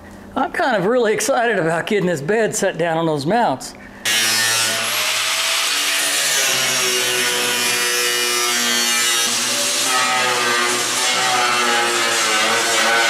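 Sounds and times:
angle grinder cutting sheet steel: 0:04.1 - 0:13.0.

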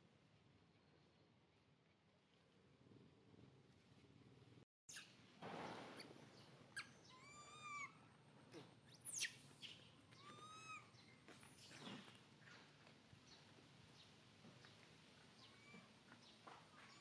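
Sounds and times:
baby monkey cooing: 0:06.8 - 0:08.0, 0:10.2 - 0:10.9.

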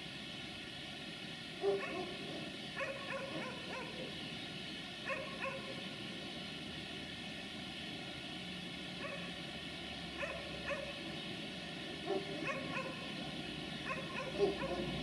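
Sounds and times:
steady background noise: 0:00.0 - 0:15.0
dog barking and yipping: 0:01.6 - 0:04.1, 0:05.1 - 0:05.7, 0:09.0 - 0:09.3, 0:10.2 - 0:11.0, 0:12.0 - 0:13.1, 0:13.8 - 0:15.0.

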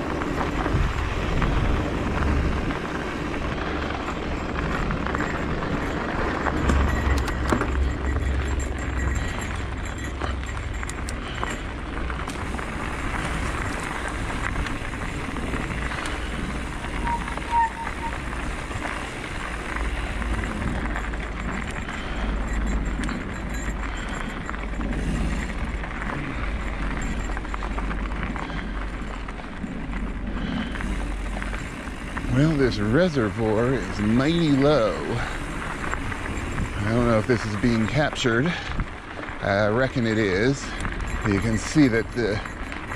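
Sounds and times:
bike tyre noise: 0:00.0 - 0:42.9
small rattles: 0:00.0 - 0:42.9
wind buffeting camera: 0:00.0 - 0:42.9
short tone: 0:16.8 - 0:18.6.

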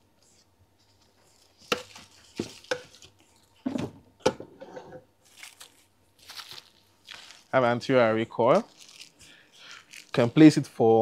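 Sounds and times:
plastic objects knocking and clattering: 0:01.6 - 0:04.6.

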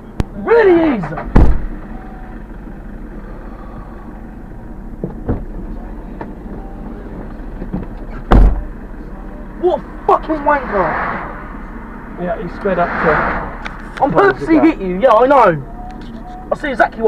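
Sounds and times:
car engine idling: 0:00.0 - 0:17.0
heavy thump: 0:01.1 - 0:01.8, 0:05.0 - 0:05.6, 0:07.6 - 0:08.7.

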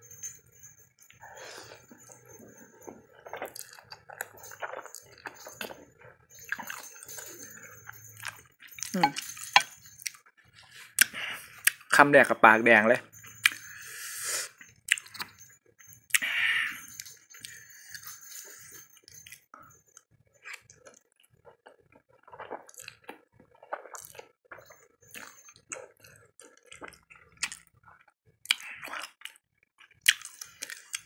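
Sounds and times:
wet chewing clicks: 0:03.3 - 0:05.9, 0:21.6 - 0:27.7, 0:28.5 - 0:31.0.

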